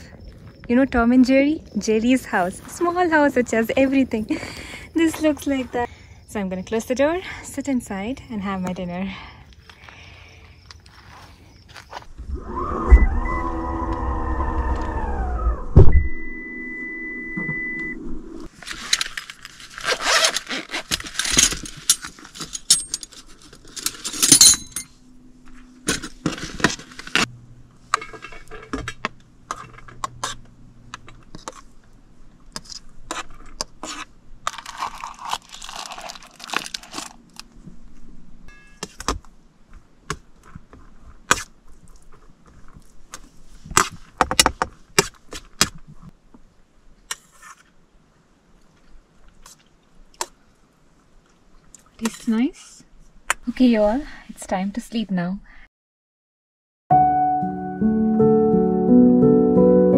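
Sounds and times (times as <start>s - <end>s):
packaging rustling: 18.5s - 24.2s, 25.8s - 27.3s, 34.5s - 37.5s
utensils and containers clinking: 21.0s - 25.0s.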